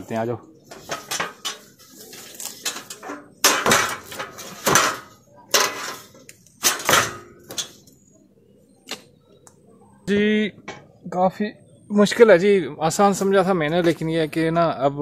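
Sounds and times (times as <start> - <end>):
metal ladder clanking: 0.7 - 7.9.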